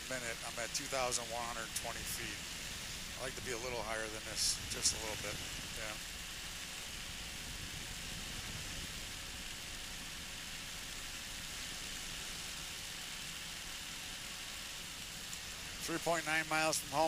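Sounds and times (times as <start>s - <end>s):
aircraft engine running: 0.0s - 17.0s
wind rush: 1.8s - 10.4s.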